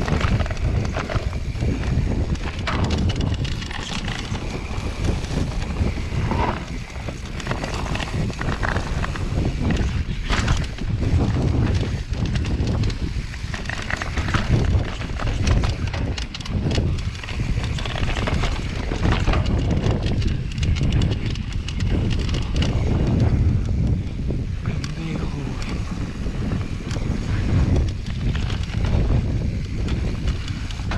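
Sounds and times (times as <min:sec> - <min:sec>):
bike clattering over rocks: 0:00.0 - 0:23.9
bike tyres on dirt: 0:00.0 - 0:30.9
wind buffeting microphone: 0:00.0 - 0:30.9.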